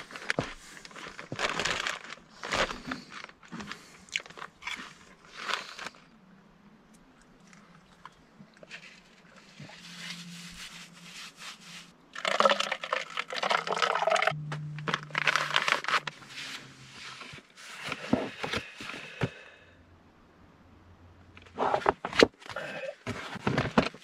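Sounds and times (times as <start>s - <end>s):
rustling and crinkling: 0.0s - 6.2s, 7.4s - 19.6s, 21.3s - 24.0s
faint low hum: 13.4s - 22.2s.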